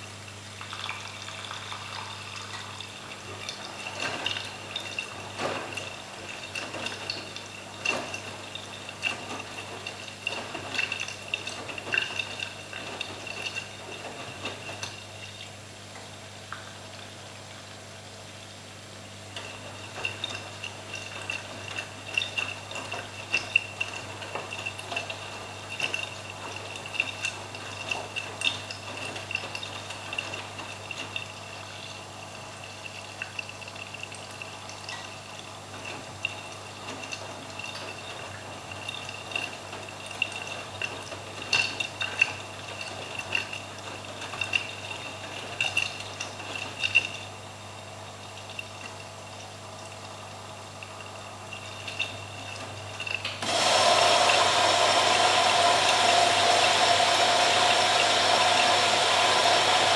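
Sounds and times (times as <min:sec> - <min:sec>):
washing machine tumbling laundry: 0:00.0 - 0:59.9
water sloshing and splashing: 0:00.7 - 0:15.6.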